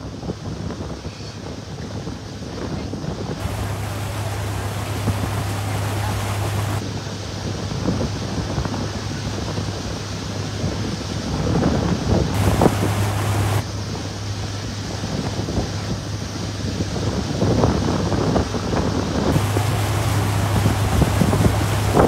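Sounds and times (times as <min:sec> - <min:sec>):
wind buffeting microphone: 0:00.0 - 0:14.2, 0:14.8 - 0:22.0
water washing along hull: 0:00.0 - 0:22.0
boat motor droning: 0:03.4 - 0:06.8, 0:12.4 - 0:14.9, 0:19.3 - 0:22.0.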